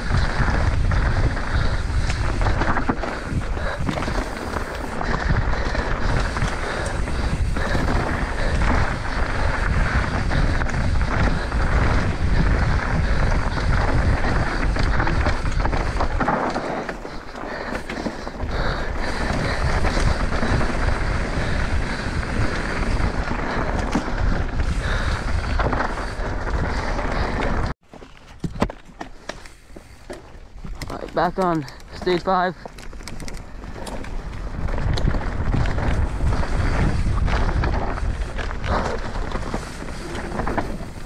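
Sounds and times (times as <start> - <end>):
wind rushing over microphone: 0.0 - 27.8, 30.5 - 41.0
bike rattling over trail: 0.0 - 41.0
bike tyres rolling: 0.0 - 41.0.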